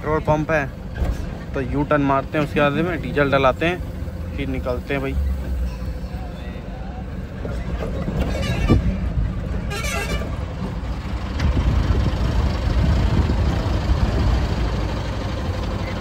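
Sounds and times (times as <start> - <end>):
truck engine rumbling: 0.0 - 16.0
wavering horn toot: 8.2 - 10.4.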